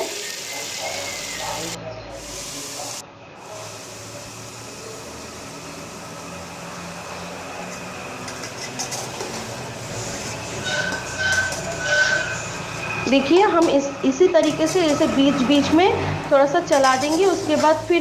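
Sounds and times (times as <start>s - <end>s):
food sizzling in pot: 0.0s - 18.0s
spatula scraping pot: 7.8s - 12.9s.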